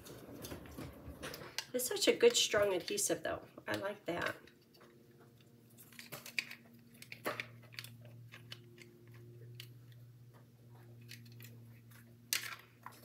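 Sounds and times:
low steady hum: 0:00.0 - 0:13.0
plastic clicks and crackles: 0:03.6 - 0:10.0, 0:11.0 - 0:13.0.

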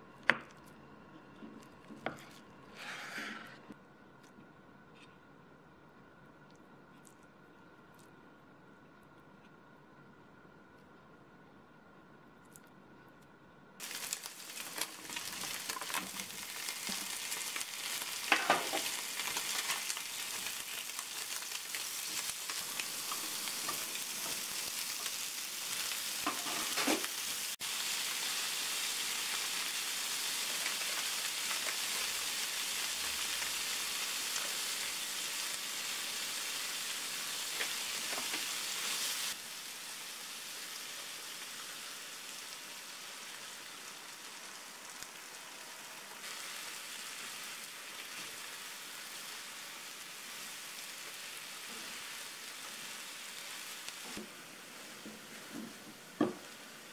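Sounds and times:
food sizzling in a frying pan: 0:13.8 - 0:56.9.

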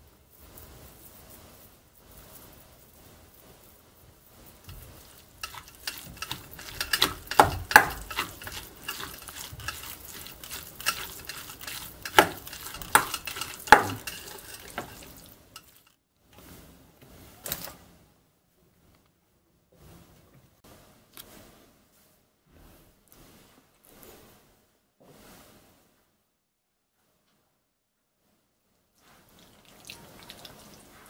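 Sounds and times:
spoon clinking and scraping bowl: 0:04.7 - 0:15.9.

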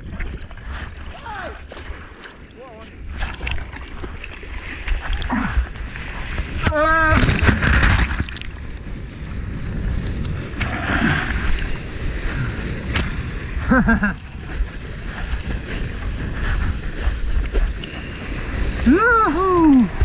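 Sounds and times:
wind buffeting microphone: 0:00.0 - 0:20.0
whitewater rushing: 0:18.1 - 0:20.0
person whooping: 0:18.8 - 0:20.0.

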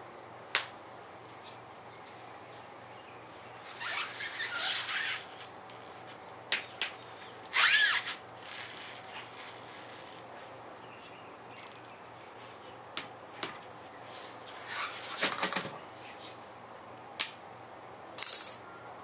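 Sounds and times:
rubber tire scraping on concrete: 0:03.6 - 0:05.5, 0:07.5 - 0:10.3, 0:14.1 - 0:15.4.

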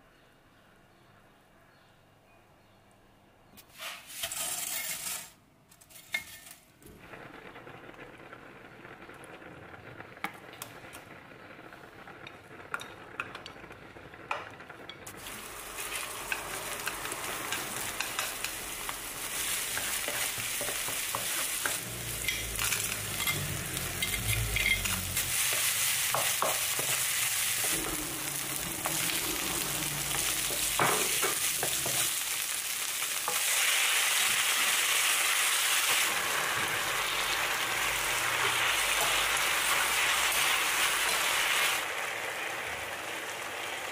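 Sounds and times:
spatula scraping and tapping pan: 0:03.7 - 0:06.6, 0:15.8 - 0:28.0
food sizzling in oil: 0:11.7 - 0:43.9.

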